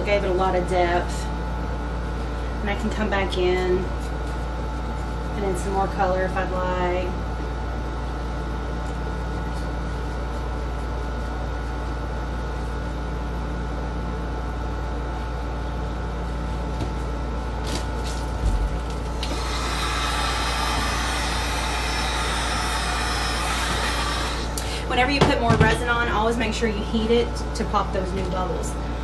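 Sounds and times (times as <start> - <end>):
steady low hum: 0.0 - 29.0
heat gun blowing: 19.2 - 24.8.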